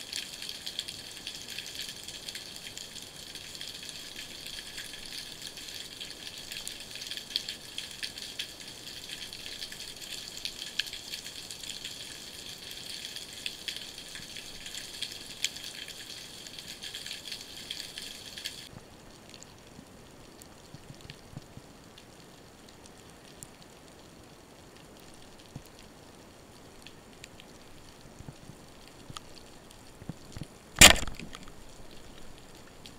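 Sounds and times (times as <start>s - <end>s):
underwater hiss with crackles: 0.0s - 18.7s.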